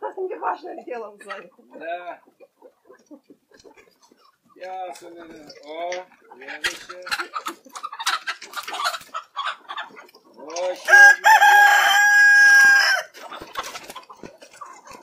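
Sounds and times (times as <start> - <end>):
hens clucking: 0.0 - 15.0
rooster crowing: 10.9 - 13.1.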